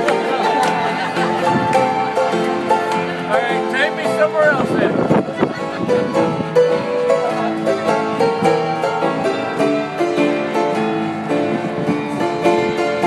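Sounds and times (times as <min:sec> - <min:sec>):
fast upright piano playing: 0:00.0 - 0:13.0.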